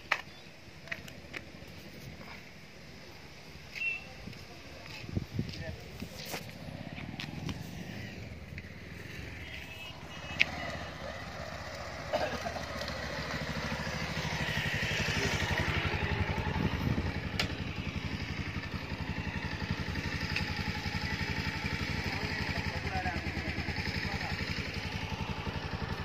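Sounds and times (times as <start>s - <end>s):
motorcycle engine: 5.6s - 26.0s.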